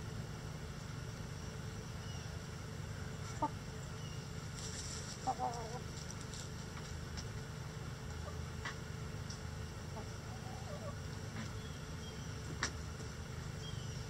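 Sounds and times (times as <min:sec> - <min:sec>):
low background hum: 0:00.0 - 0:14.0
hens clucking: 0:03.2 - 0:07.3, 0:08.0 - 0:11.6.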